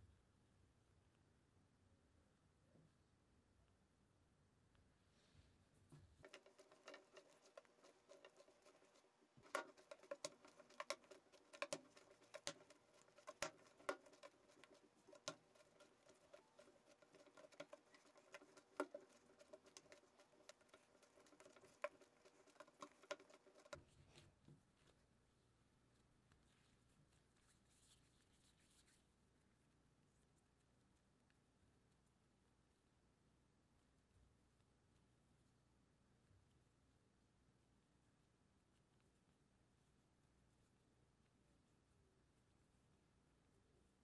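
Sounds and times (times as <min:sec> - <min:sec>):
dough kneaded by hand: 0:05.8 - 0:25.2.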